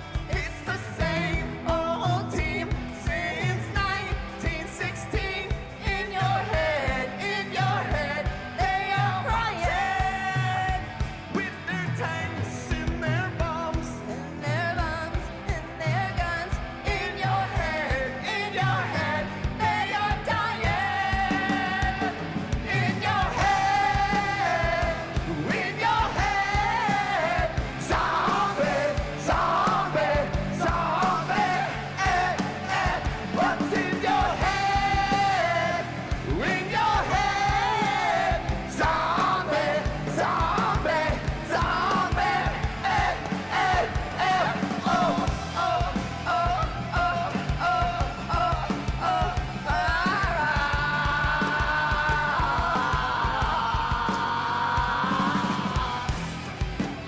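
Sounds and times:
man singing: 0.0s - 56.4s
live rock band playing: 0.0s - 57.0s.

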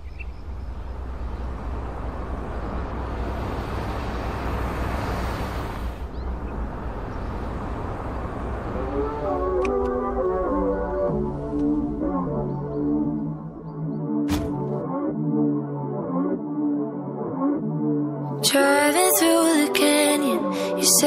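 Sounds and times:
music: 8.8s - 21.0s.

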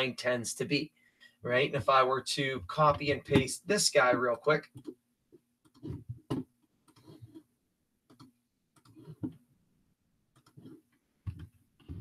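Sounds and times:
computer mouse clicks: 6.9s - 7.4s, 8.1s - 9.3s, 10.3s - 11.6s.

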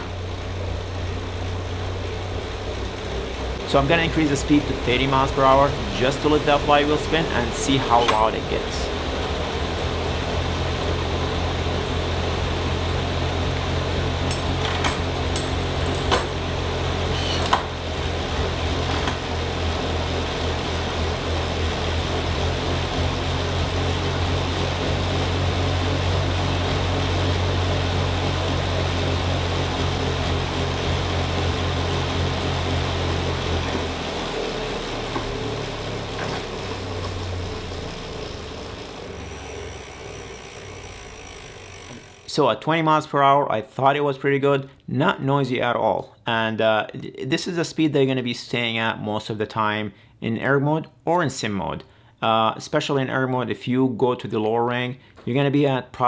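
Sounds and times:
bike trainer flywheel humming: 0.0s - 42.8s
clicks: 7.8s - 8.4s, 14.3s - 16.4s.

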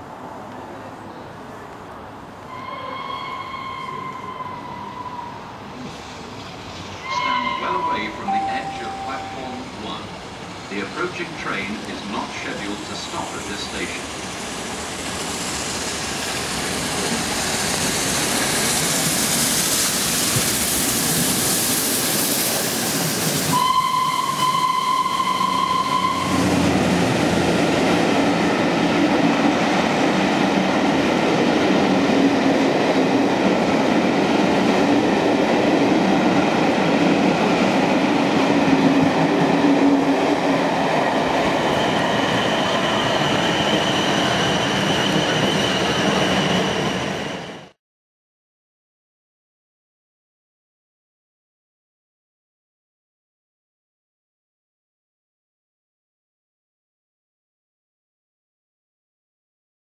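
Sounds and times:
train coaches rumbling and clattering: 0.0s - 47.7s
steam locomotive rushing past: 2.4s - 47.8s
steam whistle: 2.5s - 5.4s, 7.0s - 9.4s, 23.5s - 26.8s
thin high tone: 7.0s - 9.8s.

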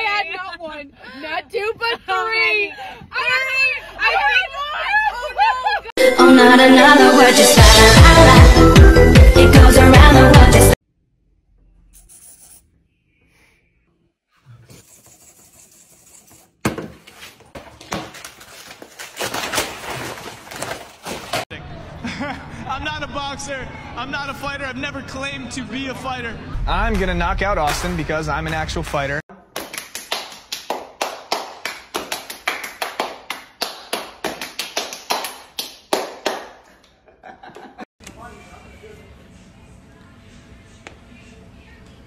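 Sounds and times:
paper crumpling: 17.0s - 21.4s
hand claps and slaps: 28.5s - 36.9s.

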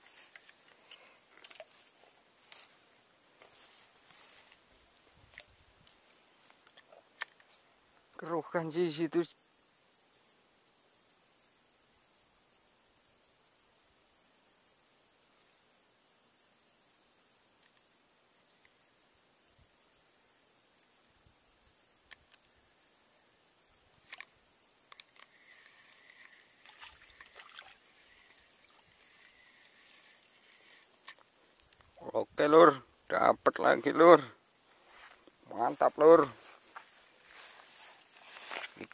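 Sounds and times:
insects chirping: 0.0s - 38.9s
steady thin whine: 24.9s - 31.2s.

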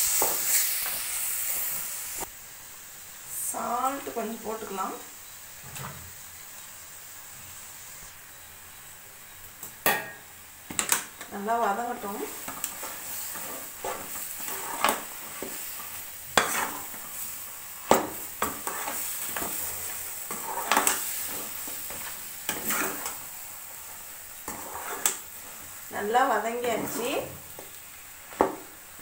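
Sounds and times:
paste sizzling in a pan: 0.0s - 29.0s
metal ladle scraping a pan: 12.4s - 17.3s, 17.9s - 23.3s, 24.4s - 25.6s.

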